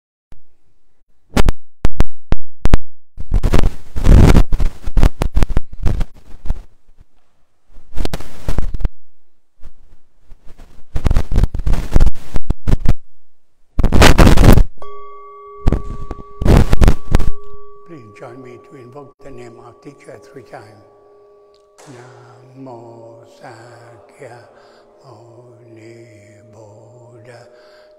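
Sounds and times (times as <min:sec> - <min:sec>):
microphone rubbing and bumping: 0:03.2 - 0:08.9, 0:09.6 - 0:13.0, 0:13.8 - 0:14.8, 0:15.6 - 0:17.8
microphone clicks: 0:03.2 - 0:09.0, 0:09.6 - 0:13.0, 0:13.8 - 0:14.7.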